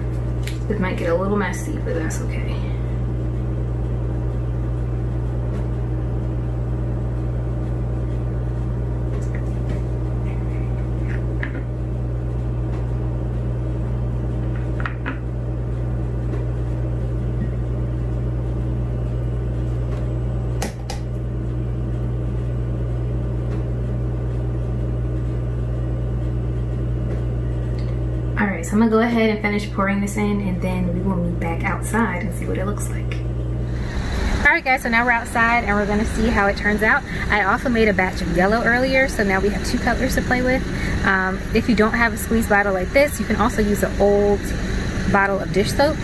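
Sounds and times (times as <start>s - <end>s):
steady low electrical hum: 0.0s - 46.0s.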